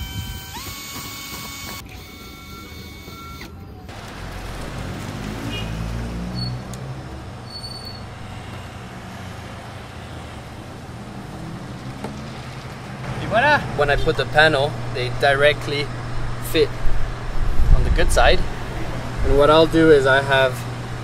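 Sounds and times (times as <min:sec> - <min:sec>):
cordless drill whining: 0:00.0 - 0:03.6
short high squeaks: 0:00.0 - 0:03.6, 0:06.3 - 0:06.7, 0:07.4 - 0:08.7
passing vehicle engine rumbling: 0:03.9 - 0:21.0.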